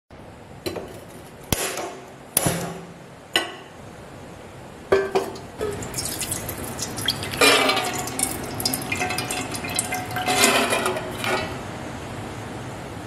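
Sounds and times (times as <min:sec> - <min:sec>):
beans pattering into water: 0:05.4 - 0:11.6
water pouring into a pot: 0:05.4 - 0:11.6.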